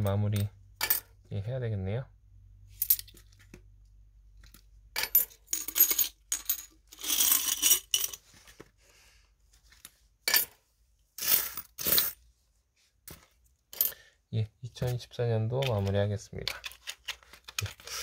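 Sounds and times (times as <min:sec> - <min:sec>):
coins clinking on a tabletop: 0:00.4 - 0:01.1, 0:02.8 - 0:03.3, 0:05.0 - 0:08.2, 0:10.3 - 0:10.6, 0:11.2 - 0:12.2, 0:13.7 - 0:14.0.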